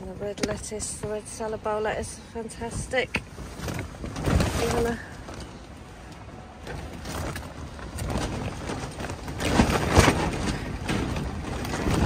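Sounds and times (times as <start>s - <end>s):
rustling: 3.4s - 12.0s.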